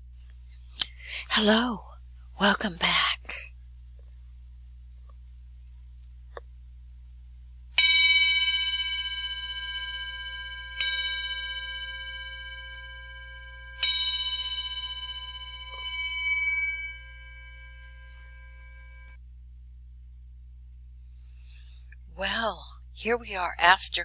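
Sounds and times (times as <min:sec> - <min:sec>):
meditation bell ringing: 0:07.8 - 0:19.2.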